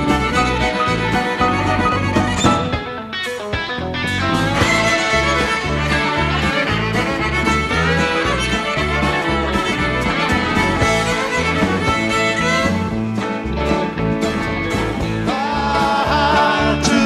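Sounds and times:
bowed violin: 0.0 - 2.8, 4.4 - 13.5
bass guitar: 0.0 - 17.0
drums: 0.0 - 17.0.

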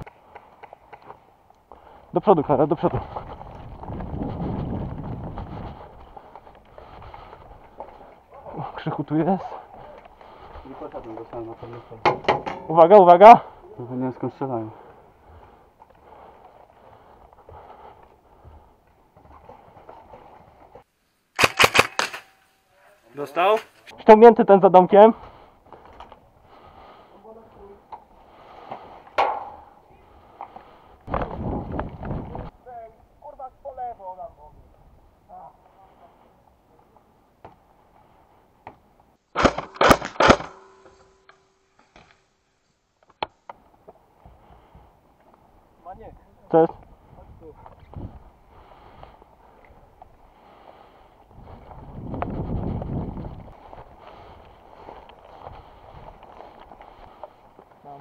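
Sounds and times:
faint footsteps: 0.0 - 12.7, 13.4 - 21.0, 24.9 - 32.6, 43.0 - 58.0
airsoft gunfire cracks: 21.4 - 22.3
clothing and gear rustling: 51.1 - 58.0.

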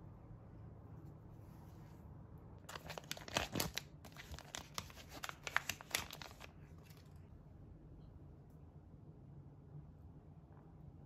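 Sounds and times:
plastic packet crinkling: 2.7 - 7.2.

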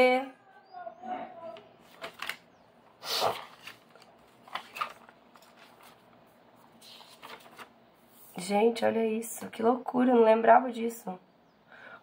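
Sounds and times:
notebook pages rustling: 1.8 - 2.4, 3.2 - 8.4.

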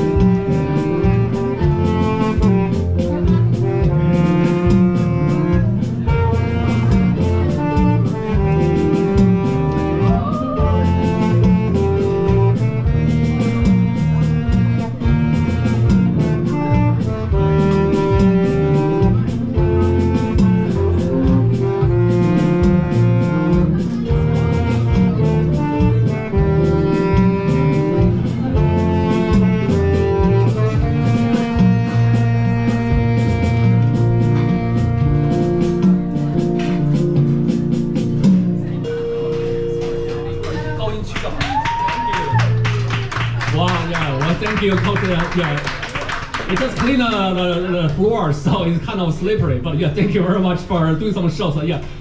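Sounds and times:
electric bass guitar: 0.0 - 51.1
keyboards playing melody: 0.0 - 51.6.

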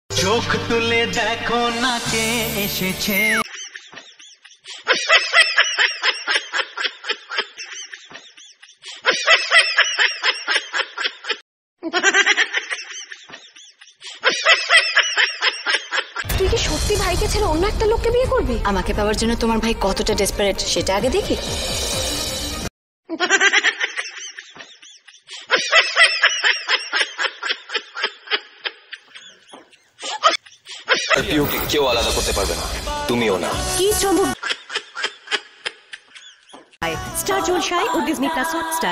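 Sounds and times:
high-pitched sped-up laughter: 3.4 - 16.3, 23.1 - 31.2.

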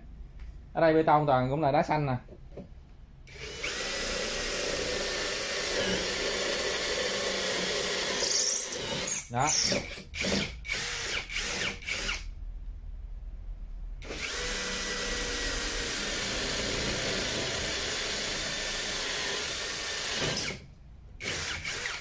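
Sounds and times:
cordless drill boring into concrete: 3.3 - 12.3, 14.0 - 20.6, 21.2 - 22.0.

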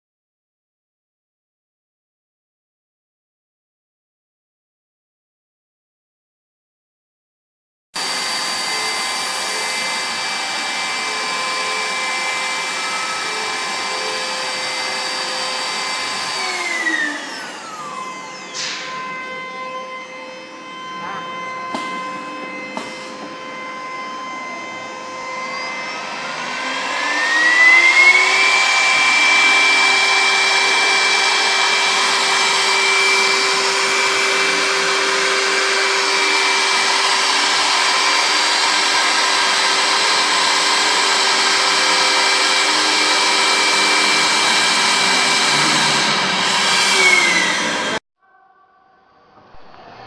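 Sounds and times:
spindle motor whine: 8.0 - 48.0.

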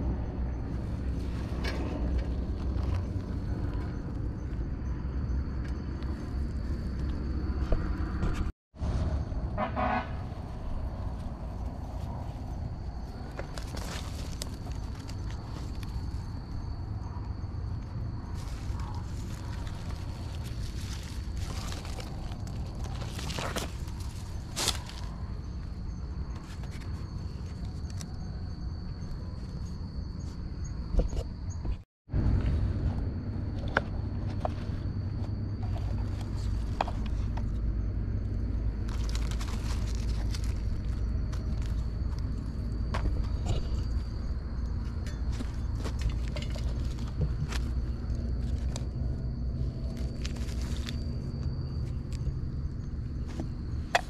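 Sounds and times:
rustling dry leaves by hand: 10.6 - 16.3, 18.3 - 25.4, 38.7 - 42.7, 45.3 - 52.2
high-pitched insect trill: 34.0 - 54.0.

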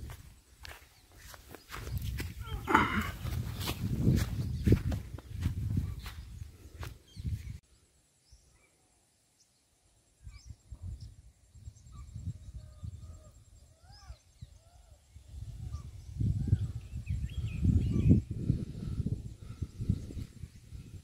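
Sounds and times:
wind rumble on microphone: 0.0 - 7.6, 10.2 - 21.0
birds chirping: 0.0 - 21.0
footsteps swishing through grass: 3.2 - 7.5.

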